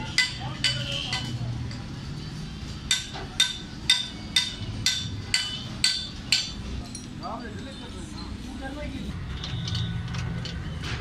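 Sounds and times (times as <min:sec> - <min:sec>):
hammer striking metal: 0:00.0 - 0:01.3, 0:02.8 - 0:07.1.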